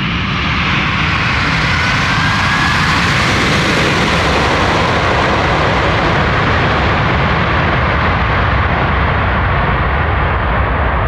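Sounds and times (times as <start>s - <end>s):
jet engine rush: 0.0s - 11.0s.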